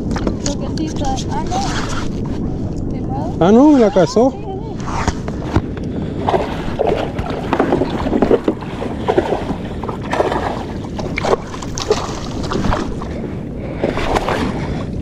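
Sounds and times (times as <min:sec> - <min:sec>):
wind buffeting microphone: 0:00.0 - 0:15.0
water slapping kayak hull: 0:05.1 - 0:15.0
fish thrashing splashes: 0:06.2 - 0:13.2.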